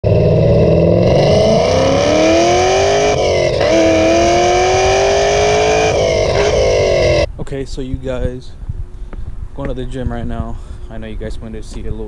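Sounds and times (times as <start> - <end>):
car engine accelerating hard: 0.0 - 7.3.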